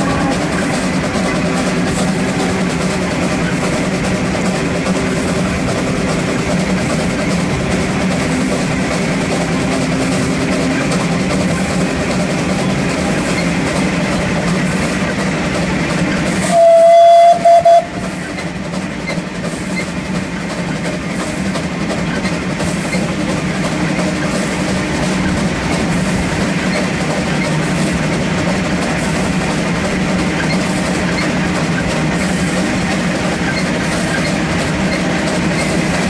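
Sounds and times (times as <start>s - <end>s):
steam locomotive running: 0.0s - 36.0s
steam whistle blast: 16.4s - 18.2s.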